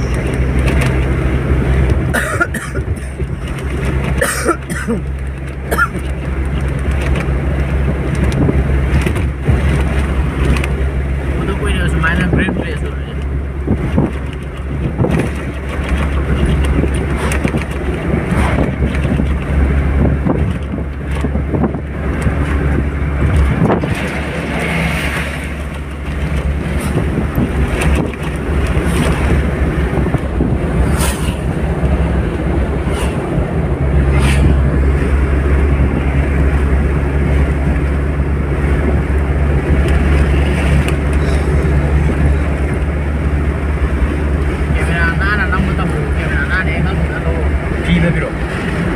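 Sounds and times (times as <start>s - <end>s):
engine and tyre rumble: 0.0s - 48.9s
wind on microphone: 7.5s - 11.0s, 13.4s - 44.4s.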